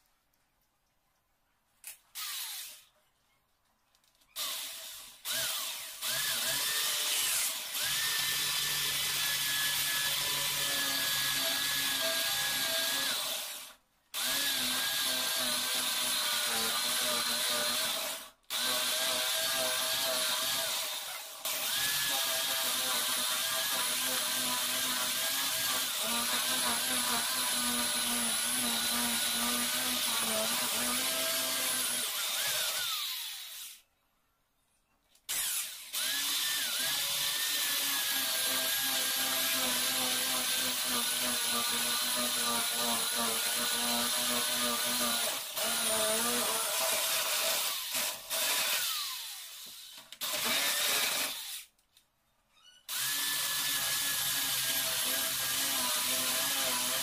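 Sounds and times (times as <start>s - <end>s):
electric drill boring into wood: 2.2s - 2.9s, 4.4s - 33.8s, 35.3s - 51.7s, 52.9s - 57.0s.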